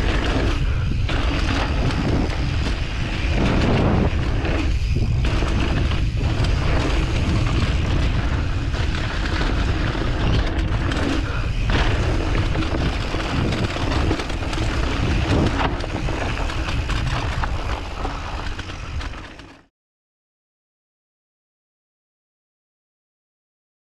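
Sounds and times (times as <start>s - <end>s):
bike knocking over bumps: 0.0s - 19.4s
wind buffeting microphone: 0.0s - 19.4s
tyres rolling over dirt: 0.0s - 19.6s.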